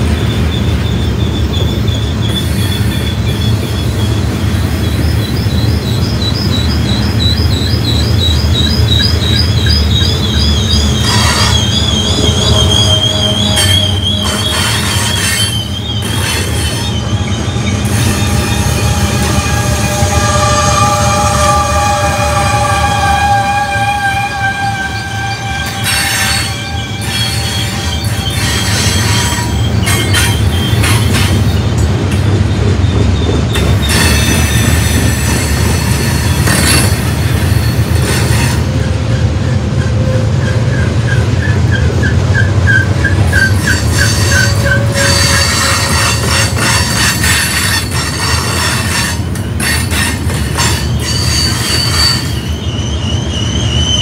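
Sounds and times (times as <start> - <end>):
high-pitched wheel squeal: 0.0 - 31.7, 32.5 - 54.0
train wheels rumbling on rail: 0.0 - 54.0.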